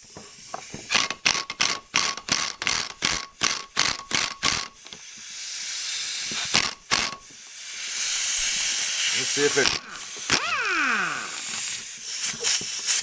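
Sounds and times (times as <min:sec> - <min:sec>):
air impact wrench hammering: 0:00.9 - 0:04.8, 0:06.4 - 0:12.6
air hiss: 0:04.8 - 0:13.0.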